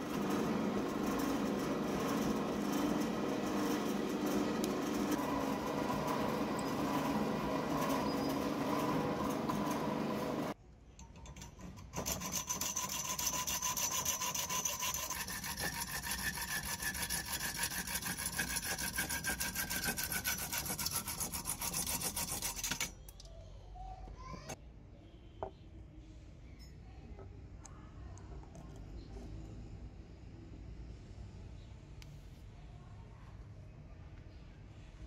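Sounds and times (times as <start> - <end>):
drill press boring: 0.0 - 10.6
hacksaw cutting metal rod: 11.8 - 23.0.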